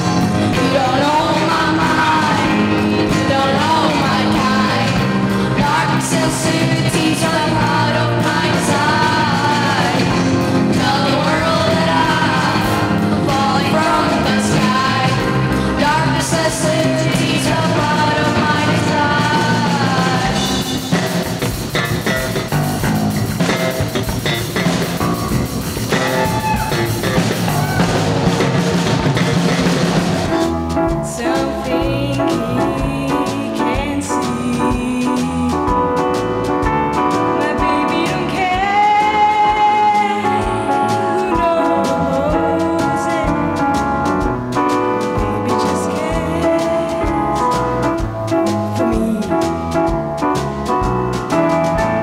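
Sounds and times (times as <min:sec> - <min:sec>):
girls singing into microphones: 0:00.0 - 0:20.8, 0:37.4 - 0:43.6
bass guitar: 0:00.0 - 0:52.0
electric guitars: 0:00.0 - 0:52.0
piano: 0:00.0 - 0:52.0.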